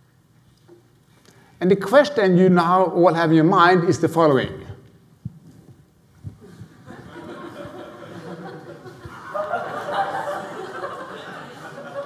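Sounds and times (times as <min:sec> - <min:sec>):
audience laughing: 0:06.7 - 0:12.0.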